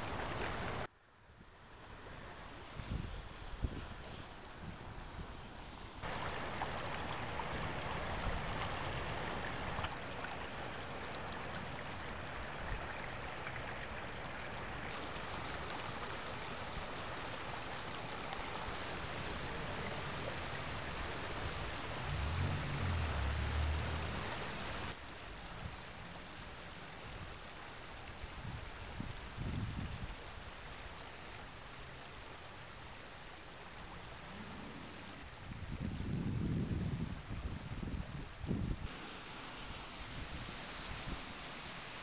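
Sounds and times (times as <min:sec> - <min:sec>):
rain falling: 0:00.0 - 0:00.9, 0:06.0 - 0:42.0
rainwater running along a curb: 0:00.0 - 0:00.9, 0:06.0 - 0:42.0
low rumble: 0:21.9 - 0:24.5.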